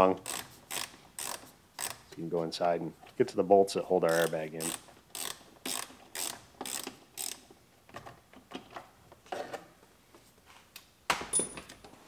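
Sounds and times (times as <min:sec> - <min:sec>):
ratchet wrench clicking: 0:00.1 - 0:02.0, 0:04.1 - 0:07.5.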